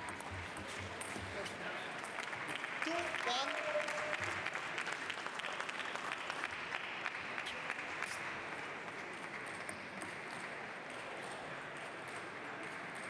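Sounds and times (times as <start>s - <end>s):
spectators applauding: 1.8s - 9.5s.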